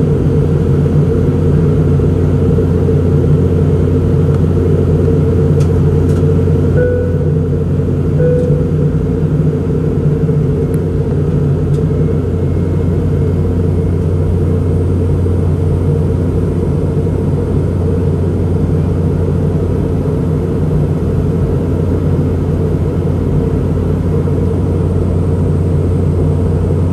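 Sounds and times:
airplane cabin engine drone: 0:00.0 - 0:26.9
low hum: 0:00.0 - 0:26.9
brief cabin tones: 0:06.8 - 0:07.6, 0:08.2 - 0:09.0.

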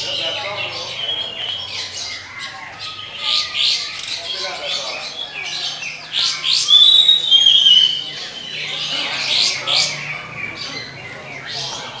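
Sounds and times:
bird singing whistled notes: 0:06.4 - 0:11.9.

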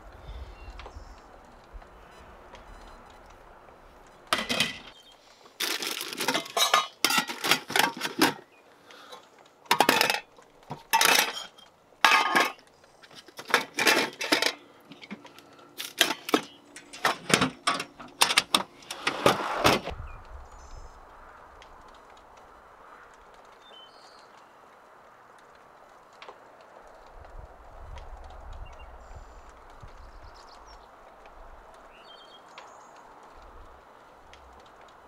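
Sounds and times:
metal kitchen gear clattering: 0:10.9 - 0:12.6, 0:13.4 - 0:14.6, 0:15.8 - 0:18.6.

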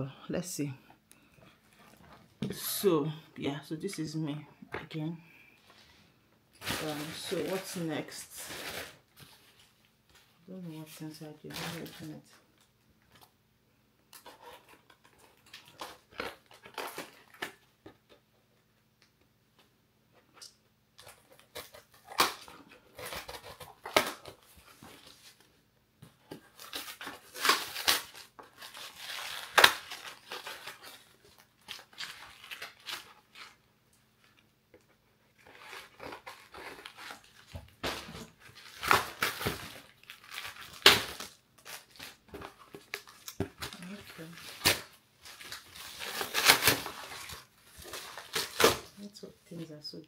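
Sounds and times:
cardboard crackling and tearing: 0:06.6 - 0:09.0, 0:14.2 - 0:17.6, 0:21.0 - 0:25.4, 0:26.3 - 0:33.6, 0:35.4 - 0:49.0.

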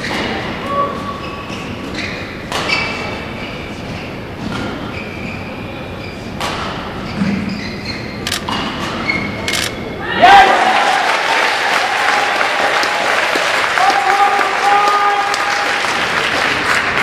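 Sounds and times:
shoe squeaks on court floor: 0:01.0 - 0:09.8.

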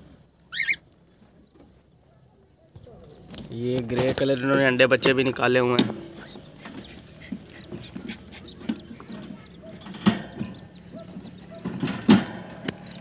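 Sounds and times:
birds chirping: 0:00.0 - 0:13.0
knocks and scrapes on wood: 0:05.0 - 0:13.0.

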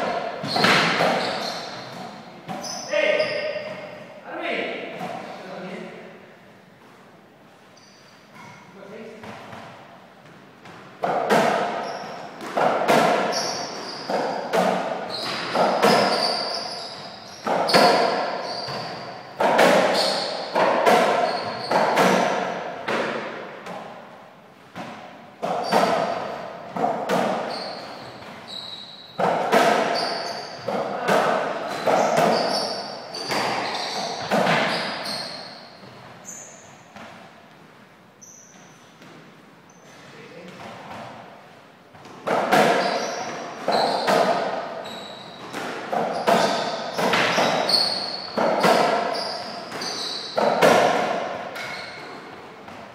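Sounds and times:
ball hitting court walls: 0:00.0 - 0:04.0, 0:09.2 - 0:24.1, 0:24.7 - 0:37.7, 0:41.9 - 0:52.9
racquets hitting ball: 0:00.0 - 0:04.0, 0:09.2 - 0:24.1, 0:24.7 - 0:37.6, 0:42.0 - 0:52.9
shoes squeaking on court: 0:00.3 - 0:04.0, 0:07.7 - 0:09.7, 0:11.5 - 0:22.3, 0:25.5 - 0:37.2, 0:38.2 - 0:39.0, 0:42.6 - 0:52.4.

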